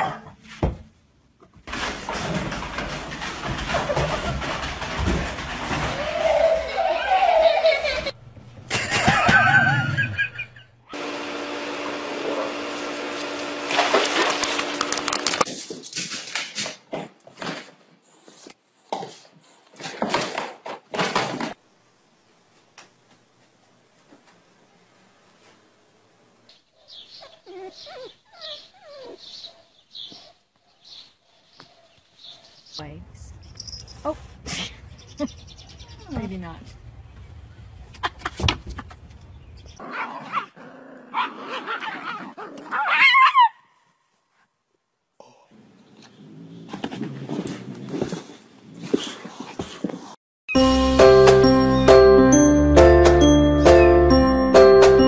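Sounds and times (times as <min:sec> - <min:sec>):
small dog yapping and yelping: 0:27.2 - 0:30.3, 0:41.1 - 0:43.7.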